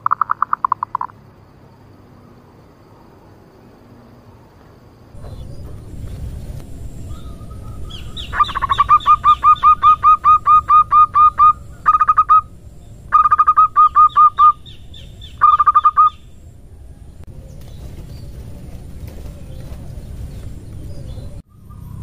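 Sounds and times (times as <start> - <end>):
low rumble: 5.1 - 15.5, 16.1 - 21.4
dove cooing: 5.2 - 22.0.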